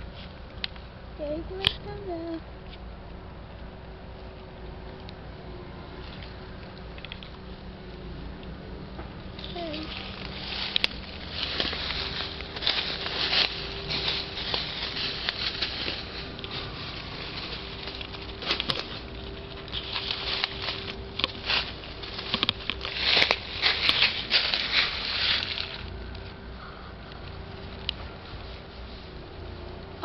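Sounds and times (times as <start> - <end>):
faint steady hum: 0.0 - 30.0
rustling and crackling: 5.8 - 30.0.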